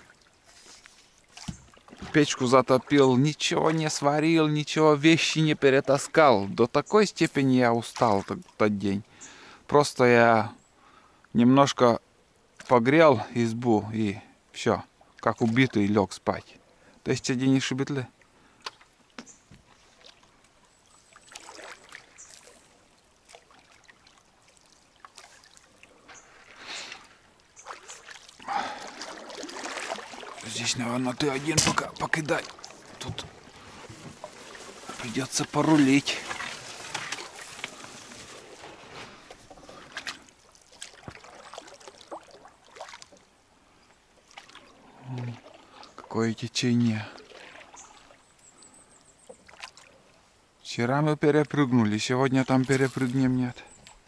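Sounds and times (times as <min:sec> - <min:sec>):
water swishing and splashing: 0:00.0 - 0:09.2, 0:14.9 - 0:50.5, 0:51.3 - 0:54.0.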